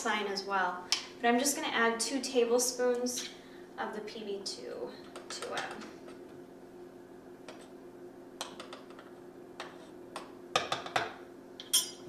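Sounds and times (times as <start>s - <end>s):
sharp ringing tink: 11.7s - 12.0s.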